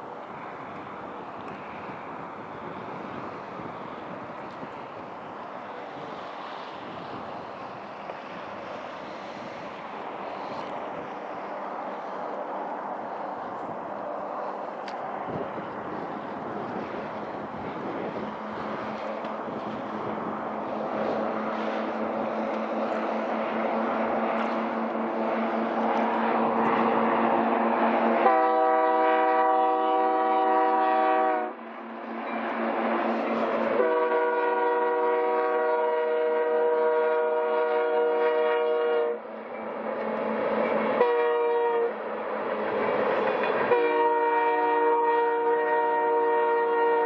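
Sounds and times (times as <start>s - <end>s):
locomotive air horn: 28.2s - 31.6s, 33.4s - 39.2s, 40.9s - 42.0s, 43.6s - 47.0s.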